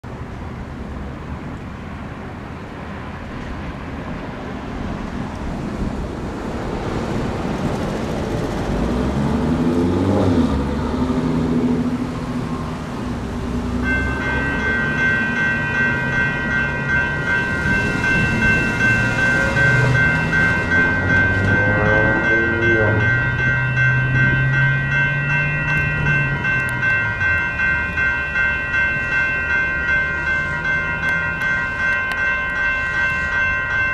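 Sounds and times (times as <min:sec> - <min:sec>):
road traffic passing: 0:00.0 - 0:33.9
crossing warning bell ringing: 0:12.5 - 0:33.9.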